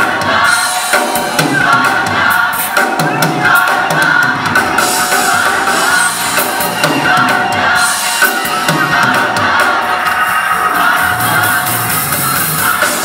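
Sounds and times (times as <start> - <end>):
gospel choir singing: 0.0 - 13.0.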